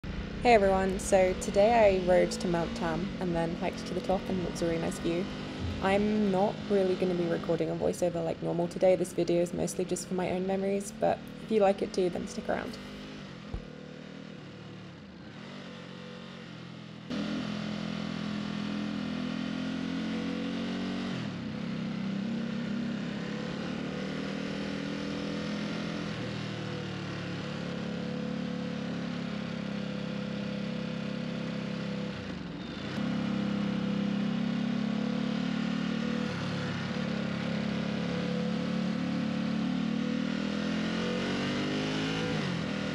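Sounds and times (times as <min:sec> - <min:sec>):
wind and road noise: 0:00.0 - 0:14.3
motorcycle engine running: 0:00.0 - 0:42.9.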